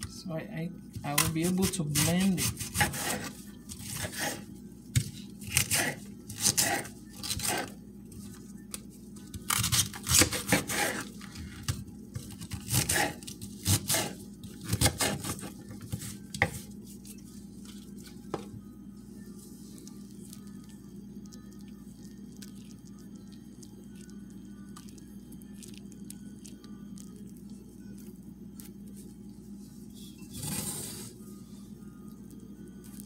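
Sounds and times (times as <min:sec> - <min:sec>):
knife cutting cabbage: 0:01.1 - 0:04.4, 0:05.0 - 0:07.8, 0:09.3 - 0:11.2, 0:12.2 - 0:16.6.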